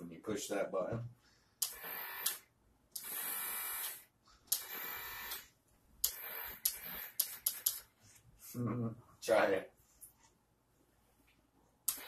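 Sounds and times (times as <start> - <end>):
small electric motor whirring: 3.0 - 7.7.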